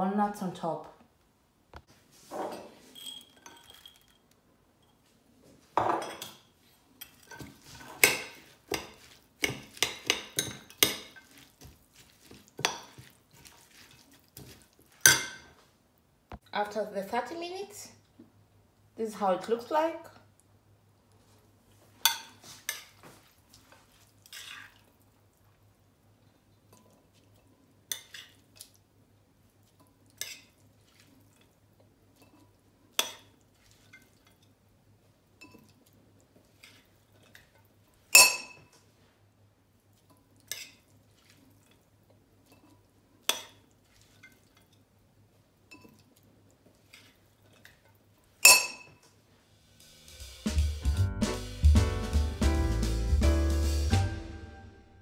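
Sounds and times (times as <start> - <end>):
metal spoon clinking ceramic bowls: 2.6 - 4.2, 7.0 - 11.5, 38.2 - 38.7, 48.4 - 49.0.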